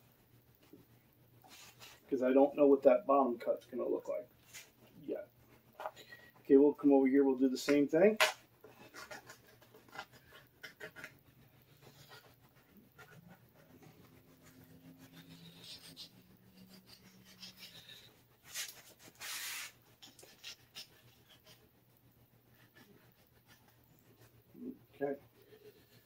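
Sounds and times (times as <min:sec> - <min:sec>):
knife cutting fabric: 0:14.0 - 0:21.6.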